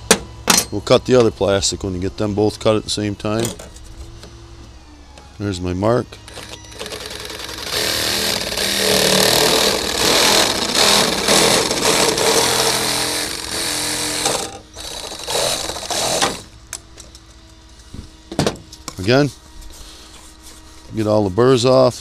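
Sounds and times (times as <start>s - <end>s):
reciprocating saw cutting plastic: 6.3s - 16.5s.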